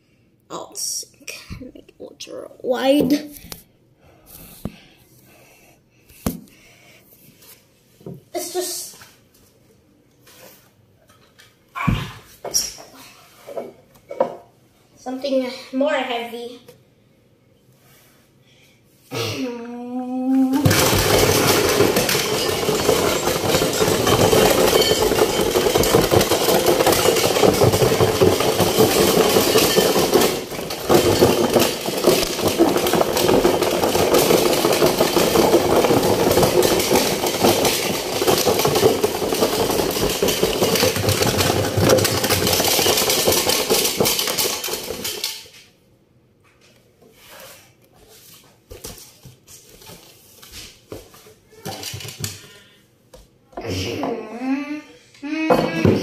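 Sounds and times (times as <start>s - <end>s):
cardboard box rattling and clattering: 20.6s - 45.3s.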